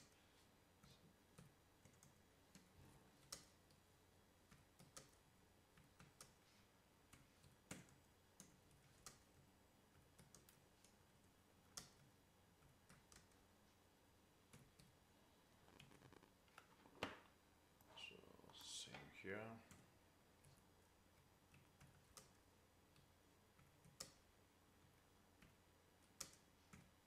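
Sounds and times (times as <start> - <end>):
computer keyboard typing: 0.8 - 3.8, 4.4 - 6.4, 7.0 - 13.5, 14.5 - 15.0, 19.6 - 27.0.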